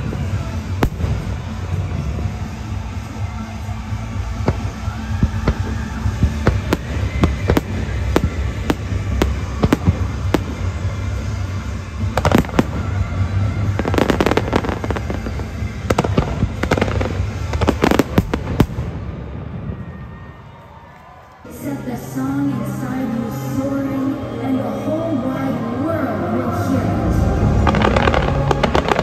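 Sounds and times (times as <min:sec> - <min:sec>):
fireworks bursting: 0:00.0 - 0:21.8, 0:26.6 - 0:29.0
show music: 0:21.5 - 0:29.0.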